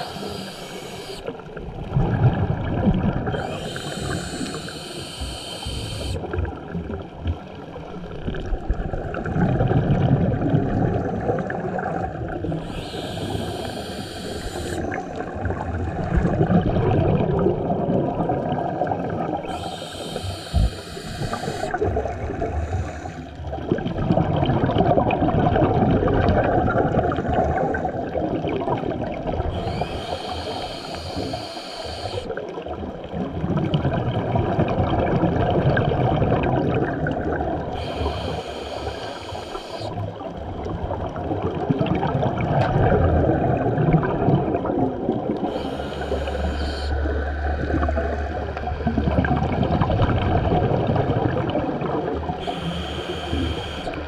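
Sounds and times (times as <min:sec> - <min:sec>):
regulator inhale hiss: 0:00.0 - 0:01.3, 0:03.3 - 0:06.3, 0:12.5 - 0:15.3, 0:19.4 - 0:23.4, 0:29.5 - 0:32.4, 0:37.7 - 0:40.0, 0:45.4 - 0:47.1, 0:52.4 - 0:54.0
exhaled air bubbling: 0:00.0 - 0:54.0.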